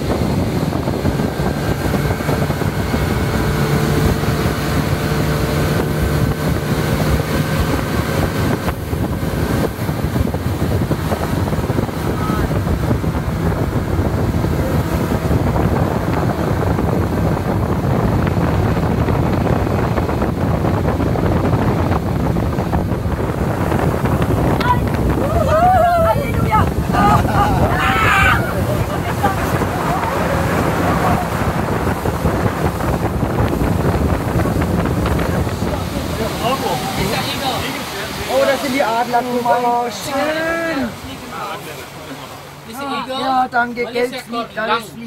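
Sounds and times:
wind buffeting microphone: 0.0s - 42.7s
speedboat engine running: 0.0s - 45.0s.

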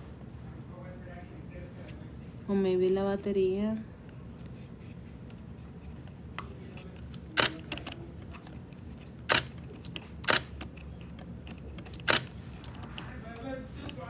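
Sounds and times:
camera shutter firing: 7.4s - 7.6s, 9.3s - 9.6s, 10.2s - 10.5s, 12.0s - 12.3s.

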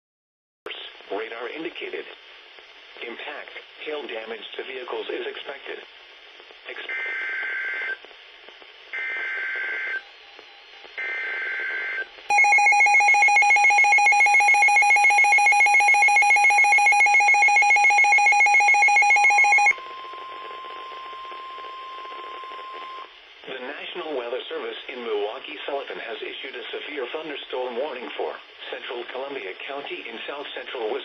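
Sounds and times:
rapidly pulsing alarm tone: 12.3s - 20.0s.

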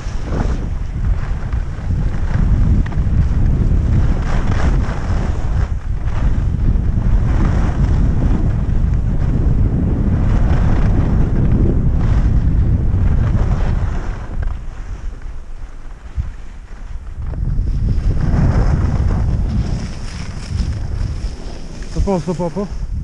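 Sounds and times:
skis scraping across snow: 0.0s - 23.0s
wind buffeting microphone: 0.0s - 23.0s.

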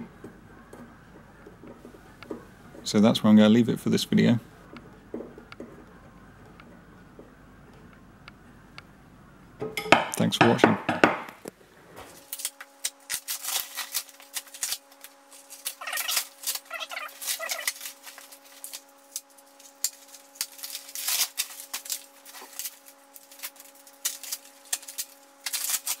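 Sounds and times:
cardboard crackling and rustling: 12.0s - 26.0s
cardboard ripping: 12.1s - 26.0s.

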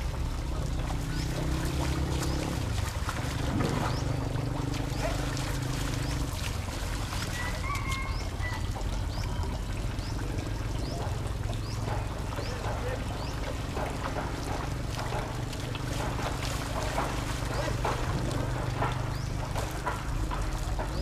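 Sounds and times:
water splashing and trickling: 0.0s - 21.0s.

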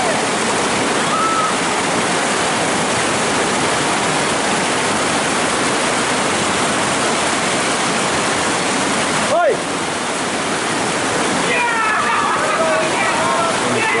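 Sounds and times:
river rapids rushing: 0.0s - 14.0s.

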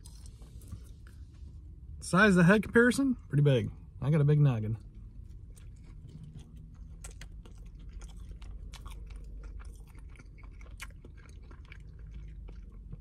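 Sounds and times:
man chewing food: 0.0s - 1.7s, 4.8s - 13.0s.

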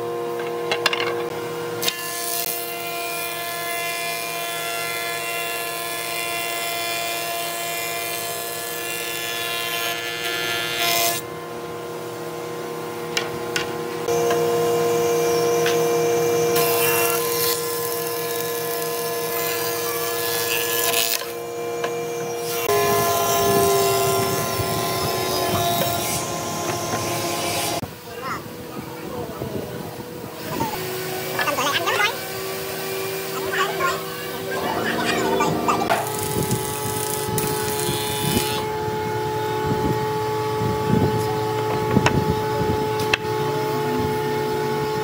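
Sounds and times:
thickness planer running: 13.0s - 27.8s, 30.8s - 39.5s.

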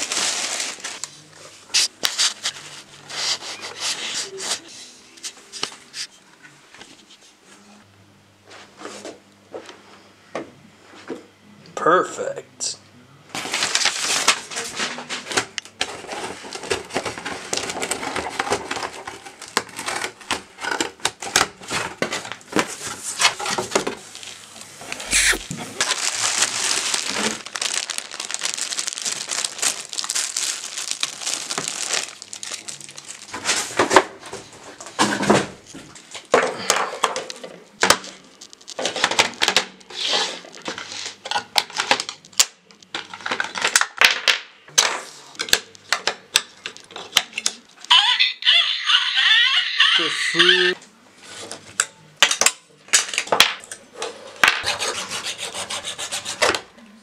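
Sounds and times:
plastic bag crinkling: 0.0s - 1.1s, 13.4s - 14.7s, 23.2s - 34.8s, 37.1s - 41.0s.

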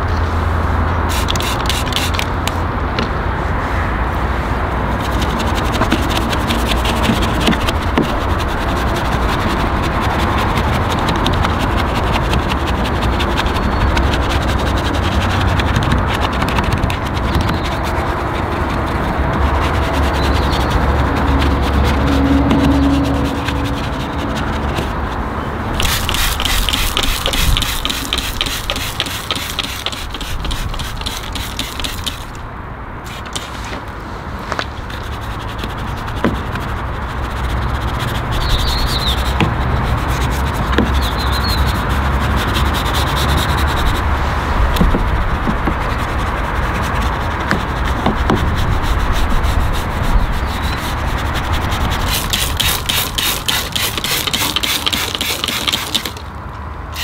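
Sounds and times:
rubbing on car surface: 1.0s - 2.7s, 4.8s - 32.4s, 33.1s - 56.2s.

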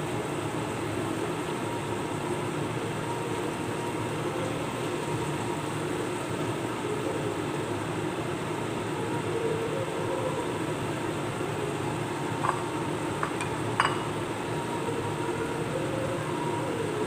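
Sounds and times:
food sizzling in oil: 11.0s - 14.8s.

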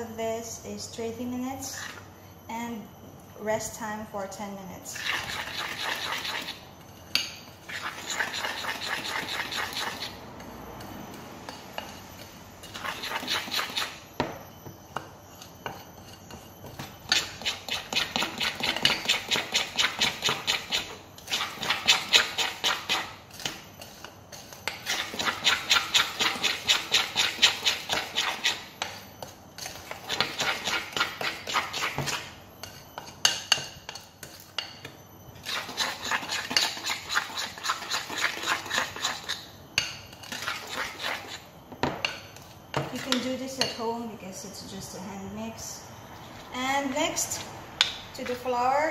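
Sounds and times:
whisk beating batter in bowl: 5.0s - 6.6s, 7.7s - 10.1s, 17.1s - 32.2s, 35.4s - 39.4s, 40.3s - 41.4s.

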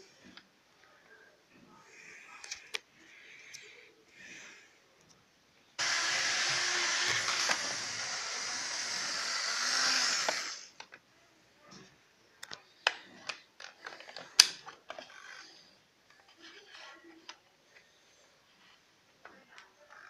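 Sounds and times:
toy train motor whirring: 5.8s - 10.8s.

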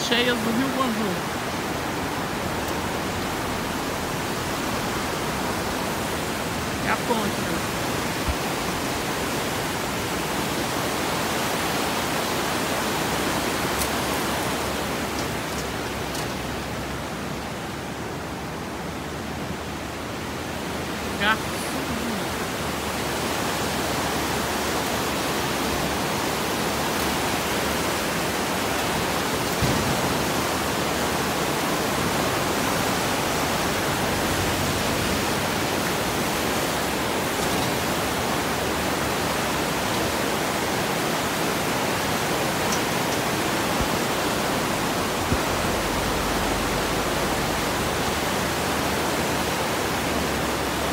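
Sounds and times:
river rushing through rapids: 0.0s - 50.9s.

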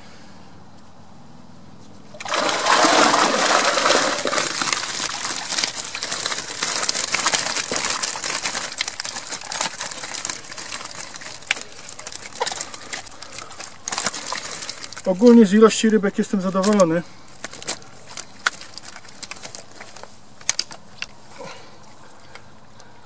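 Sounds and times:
water splashing off a net: 2.2s - 15.0s
fish splashing and clicking: 2.2s - 15.4s, 16.5s - 21.2s.

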